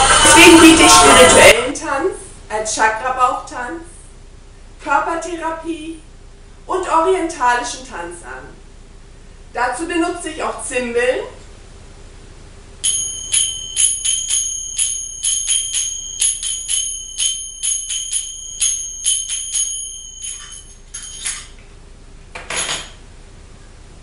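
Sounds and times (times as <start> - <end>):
finger cymbals ringing: 12.8 - 21.4.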